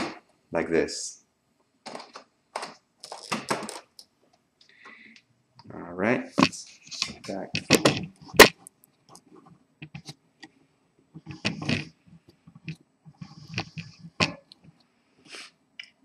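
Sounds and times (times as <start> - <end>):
rustling scrapes: 11.2 - 14.4.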